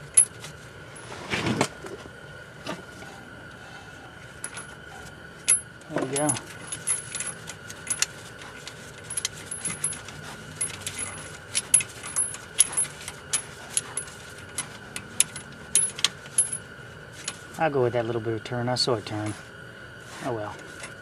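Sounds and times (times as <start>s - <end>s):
hand tool clinking on metal: 5.5s - 16.6s.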